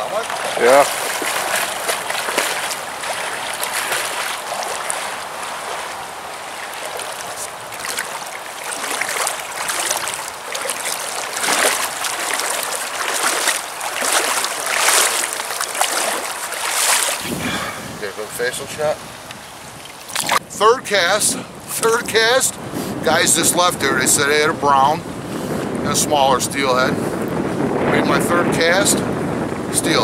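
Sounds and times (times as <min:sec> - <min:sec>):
fish splashing at the surface: 0:00.0 - 0:17.9, 0:19.8 - 0:20.4
creek water running: 0:00.0 - 0:27.5.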